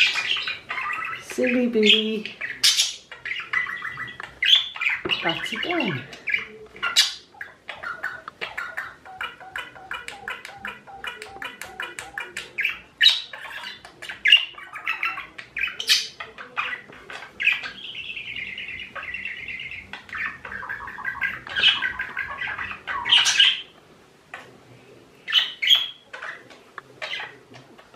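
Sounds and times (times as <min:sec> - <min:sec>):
budgerigar chirping and warbling: 0:00.0 - 0:23.7, 0:25.3 - 0:27.4
budgerigar squawks: 0:20.1 - 0:23.7.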